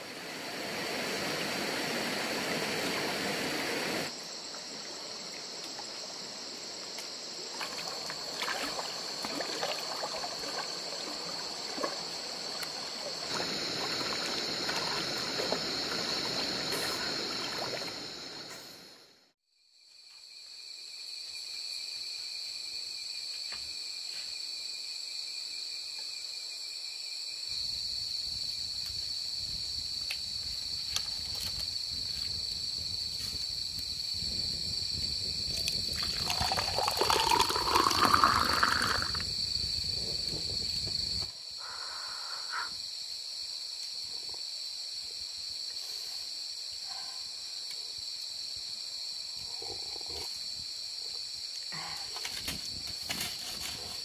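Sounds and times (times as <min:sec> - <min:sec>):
insects trilling: 0:00.0 - 0:19.1, 0:19.8 - 0:54.0
liquid pouring into cup: 0:35.8 - 0:39.2.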